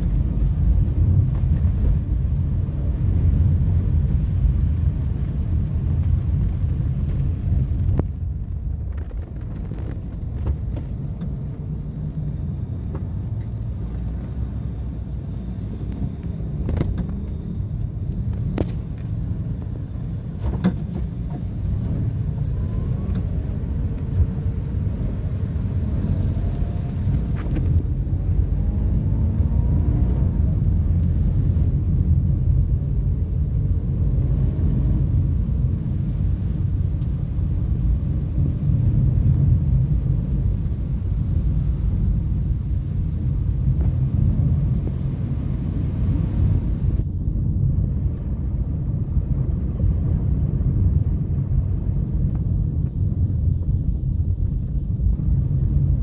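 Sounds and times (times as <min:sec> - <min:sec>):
car interior road rumble: 0:00.0 - 0:56.0
engine revving: 0:22.0 - 0:31.6.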